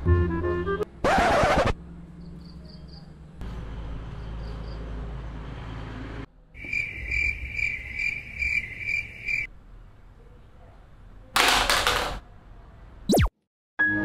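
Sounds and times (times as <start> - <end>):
cricket chirping: 2.2 - 3.2, 4.1 - 4.9, 6.6 - 9.5.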